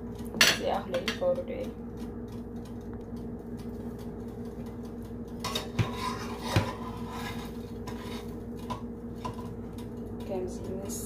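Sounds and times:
low steady hum: 0:00.0 - 0:11.0
metal spatula scraping frying pan: 0:05.4 - 0:09.4.

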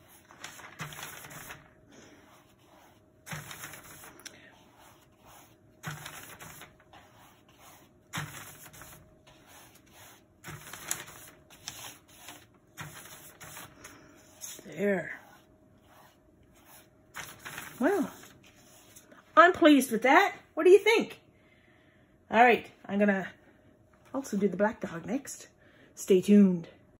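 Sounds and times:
brush swishing across paper: 0:00.0 - 0:19.1.

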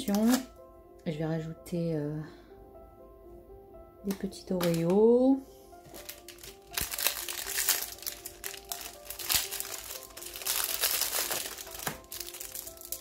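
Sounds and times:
plastic wrapper crinkling: 0:00.0 - 0:00.5, 0:04.6 - 0:04.9, 0:05.9 - 0:13.0
background music: 0:00.0 - 0:13.0.

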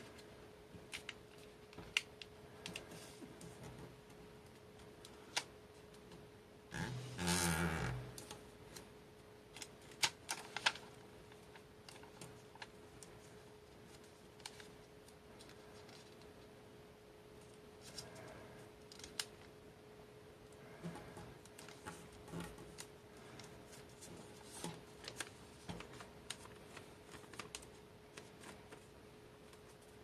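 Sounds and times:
faint steady hum: 0:00.0 - 0:30.0
paper folding and creasing: 0:09.5 - 0:16.4, 0:17.8 - 0:19.5, 0:20.6 - 0:30.0.

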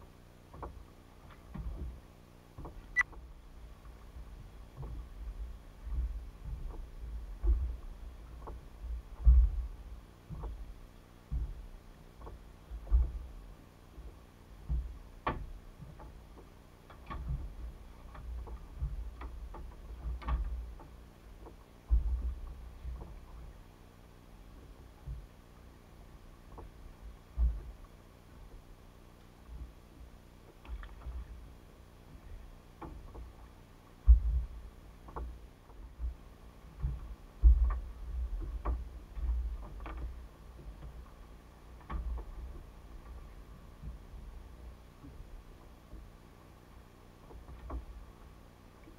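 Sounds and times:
faint steady hum: 0:00.0 - 0:48.9
low bumps: 0:00.0 - 0:48.9
thumps on boat deck: 0:04.7 - 0:13.4, 0:14.0 - 0:23.5, 0:34.0 - 0:41.1.

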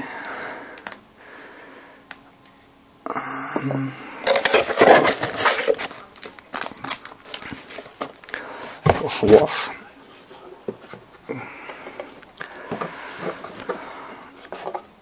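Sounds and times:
cardboard and plastic packaging rustling: 0:04.3 - 0:11.2, 0:11.8 - 0:15.0.

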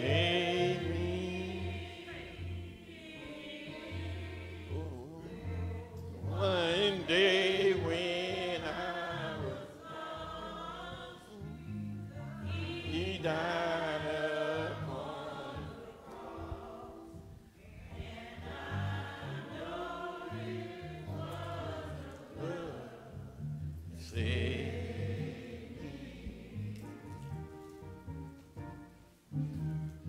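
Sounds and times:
voices singing a gospel hymn: 0:00.0 - 0:28.3
low bass accompaniment: 0:10.7 - 0:30.0.

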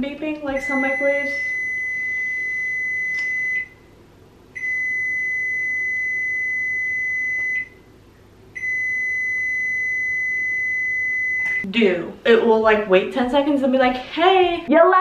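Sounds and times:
microwave beeps: 0:00.5 - 0:03.8, 0:04.6 - 0:07.8, 0:08.6 - 0:11.7.

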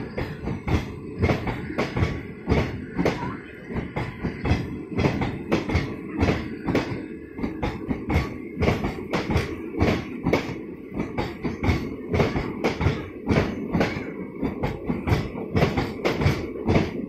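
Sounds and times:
steady train rumble: 0:00.0 - 0:17.0
train wheels clacking over joints: 0:00.0 - 0:17.0.

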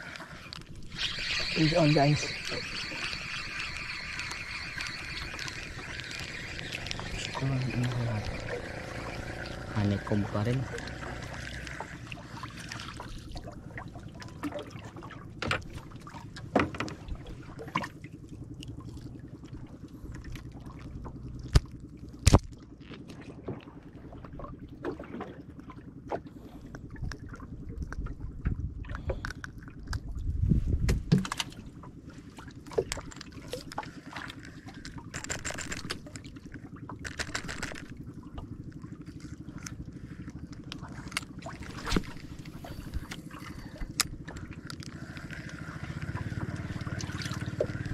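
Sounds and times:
steady low hum: 0:00.0 - 0:47.9
water sloshing against hull: 0:00.0 - 0:47.9
low thump-rumble: 0:30.0 - 0:31.4.

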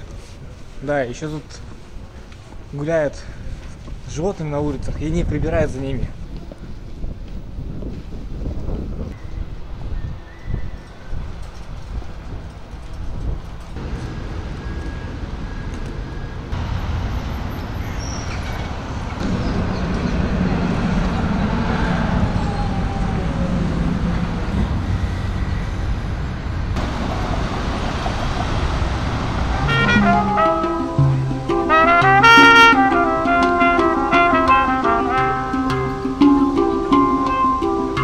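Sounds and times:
passing cars: 0:09.1 - 0:38.0
trams passing: 0:10.8 - 0:38.0
low engine hum: 0:18.8 - 0:36.1
trumpet playing: 0:29.4 - 0:38.0.

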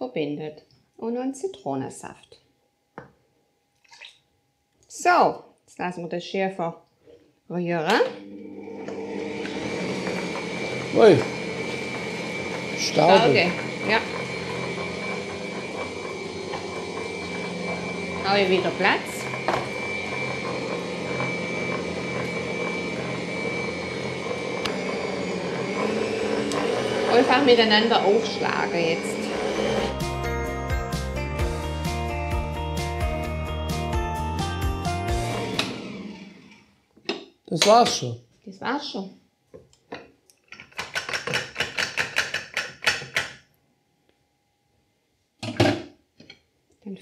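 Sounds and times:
stand mixer motor whine: 0:08.0 - 0:30.6, 0:35.1 - 0:36.7.

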